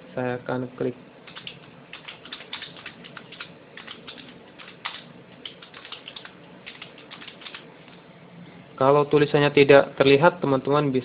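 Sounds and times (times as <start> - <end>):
keyboard typing clicks: 1.3 - 7.6.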